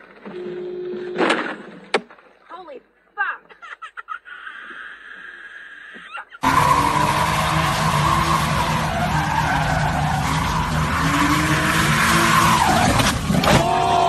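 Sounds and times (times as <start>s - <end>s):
car tyres squealing: 5.8s - 14.0s
car engine revving: 6.4s - 14.0s
onlookers shouting and whooping: 13.4s - 14.0s.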